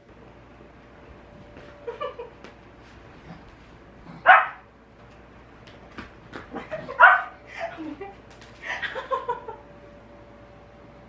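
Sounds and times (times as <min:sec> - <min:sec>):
dog yipping and barking: 0:04.2 - 0:04.6, 0:06.9 - 0:07.4.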